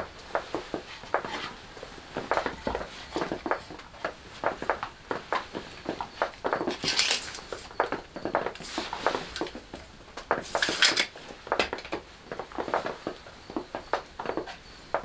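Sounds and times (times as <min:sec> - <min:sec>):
wooden planks clicking and knocking: 0:00.0 - 0:15.0
tape measure blade rattling: 0:06.8 - 0:07.4.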